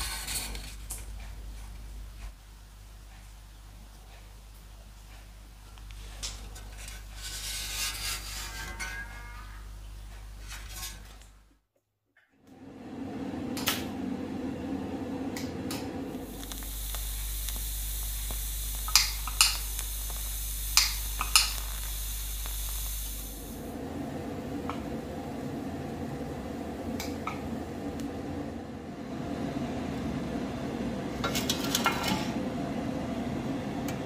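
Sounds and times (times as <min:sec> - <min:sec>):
low electrical hum: 0:00.0 - 0:11.5, 0:12.5 - 0:34.0
welding arc hissing: 0:15.4 - 0:28.4
sharp clicks: 0:16.2 - 0:23.6.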